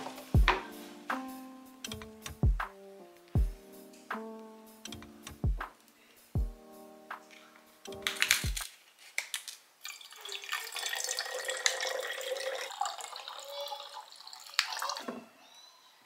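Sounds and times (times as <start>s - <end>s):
liquid pouring into glass bottle: 9.8s - 15.0s.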